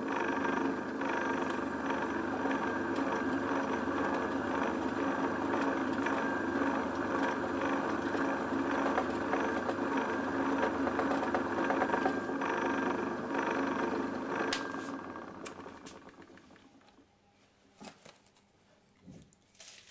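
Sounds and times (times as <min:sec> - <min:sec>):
milling machine motor hum: 0:00.0 - 0:17.1
drill bit cutting metal: 0:00.1 - 0:15.2.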